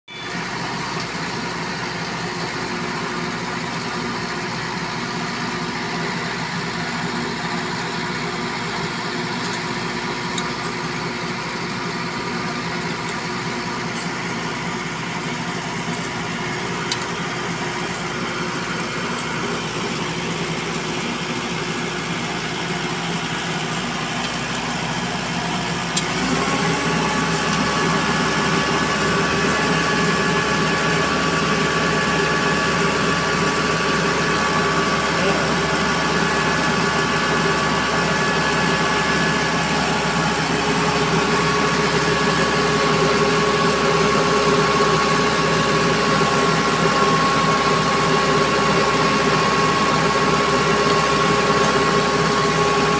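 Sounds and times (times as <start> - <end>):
crane truck engine running: 0.1 - 52.9.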